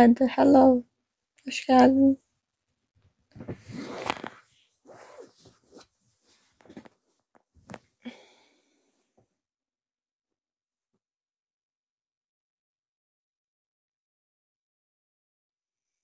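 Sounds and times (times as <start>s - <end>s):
phone microphone handling noise: 3.3s - 5.9s.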